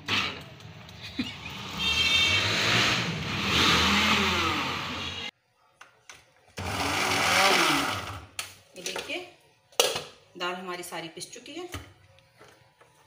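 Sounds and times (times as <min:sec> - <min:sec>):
food chopper motor grinding: 0:02.4 - 0:05.3, 0:06.6 - 0:08.3.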